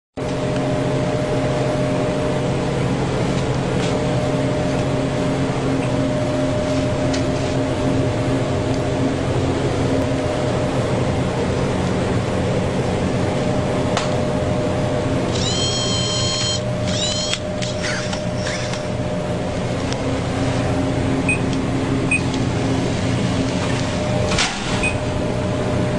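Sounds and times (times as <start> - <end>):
vending machine humming: 0.2 - 25.9
high electronic tone: 15.3 - 18.8.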